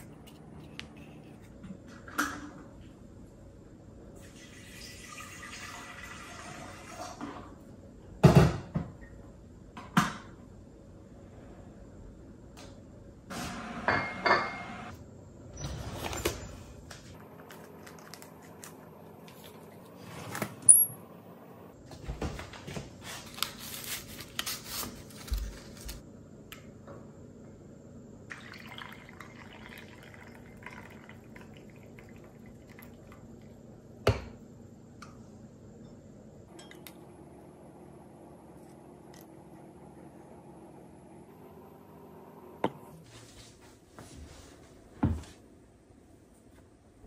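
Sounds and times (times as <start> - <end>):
water pouring: 4.2 - 7.2, 28.3 - 33.5
foil packet tearing and crinkling: 23.1 - 26.0.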